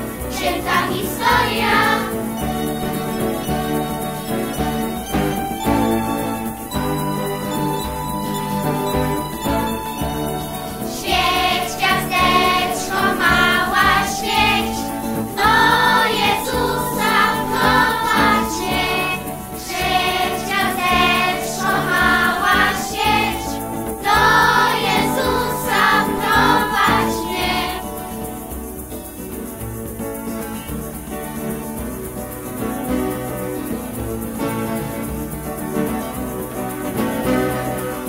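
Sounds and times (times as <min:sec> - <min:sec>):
instrumental backing: 0:00.0 - 0:38.0
young voices singing a carol: 0:00.2 - 0:05.9, 0:06.5 - 0:28.7.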